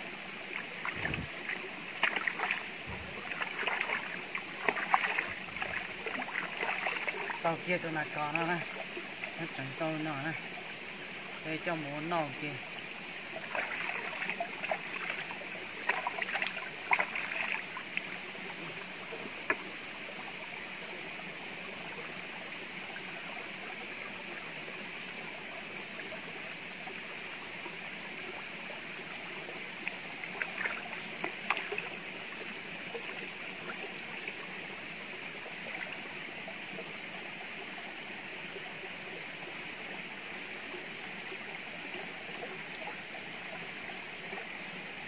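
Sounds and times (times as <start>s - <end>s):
rocky stream running: 0.0s - 45.0s
splashes of rinsing in water: 0.5s - 9.6s, 13.4s - 18.1s, 30.3s - 31.9s.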